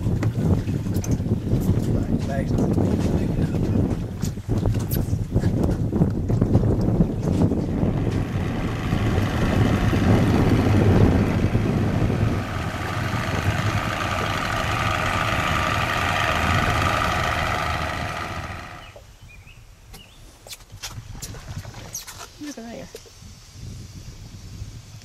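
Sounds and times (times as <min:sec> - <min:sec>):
engine running steadily: 0:06.4 - 0:19.0
low rumble: 0:07.1 - 0:19.0.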